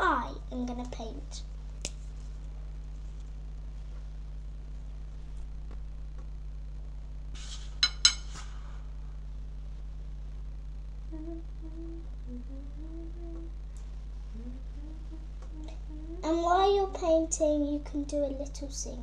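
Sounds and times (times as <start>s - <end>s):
low electrical hum: 0.0s - 19.0s
girl humming a tune: 11.1s - 13.6s, 14.3s - 16.9s.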